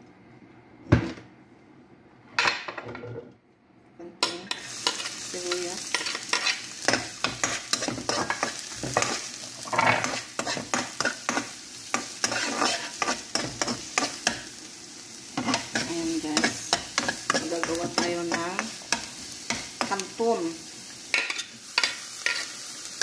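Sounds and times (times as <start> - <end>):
onions sizzling in oil: 4.2 - 23.0
spatula scraping and tapping pan: 5.9 - 14.5, 15.4 - 20.1, 21.1 - 22.6.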